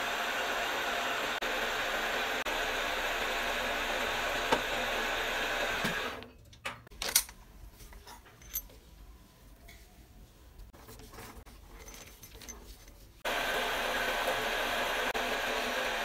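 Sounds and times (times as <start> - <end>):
metal lathe running: 0.0 - 6.2, 13.3 - 16.0.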